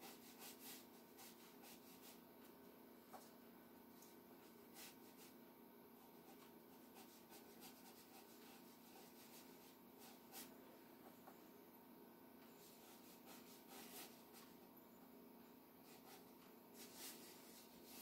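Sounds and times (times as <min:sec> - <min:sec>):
faint steady hum: 0:00.0 - 0:18.0
brush stroking across paper: 0:15.9 - 0:18.0.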